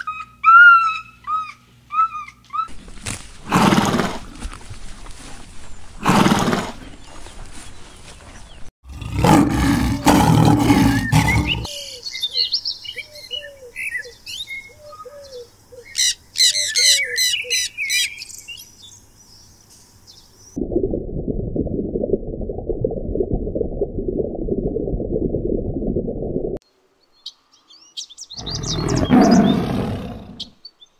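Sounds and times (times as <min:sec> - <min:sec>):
birds chirping: 0:06.8 - 0:20.6, 0:27.0 - 0:30.9
lion roaring: 0:08.9 - 0:11.7, 0:28.4 - 0:30.5
horse calling: 0:28.4 - 0:30.5.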